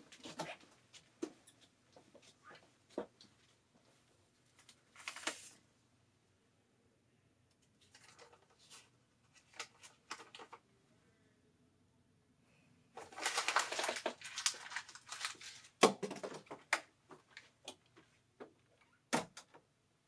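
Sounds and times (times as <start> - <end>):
crinkling and rustling in hands: 0.0 - 5.7, 7.5 - 10.7, 12.9 - 19.7.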